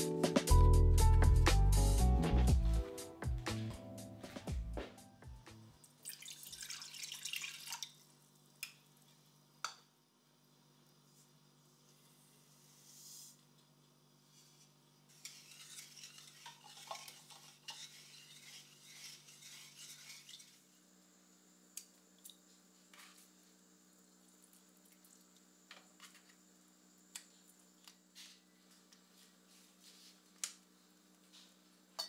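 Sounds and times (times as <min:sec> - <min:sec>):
sugar rustling into saucepan: 0:14.3 - 0:20.7.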